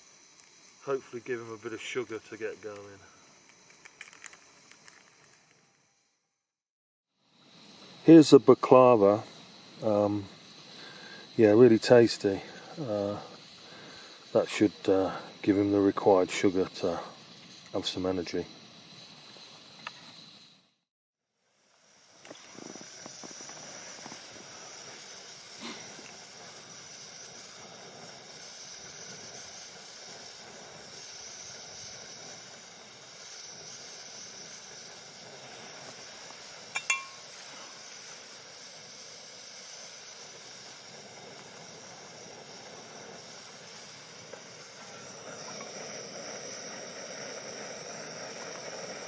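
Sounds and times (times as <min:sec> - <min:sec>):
gas stove burner hissing: 0:00.0 - 0:49.0
metallic clink: 0:36.7 - 0:37.4.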